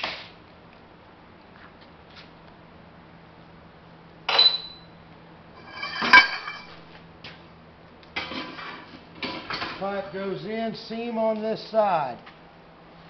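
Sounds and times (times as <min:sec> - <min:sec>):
metal rattling: 0:05.6 - 0:06.8
steel pipe clanking on metal: 0:05.6 - 0:06.8.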